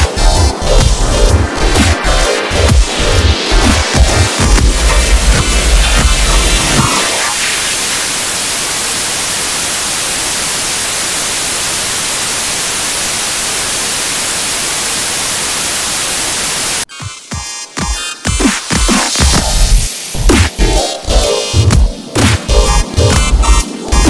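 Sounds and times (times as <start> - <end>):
bass-heavy electronic music: 0.0 - 9.2, 16.9 - 24.0
static hiss: 2.9 - 16.9.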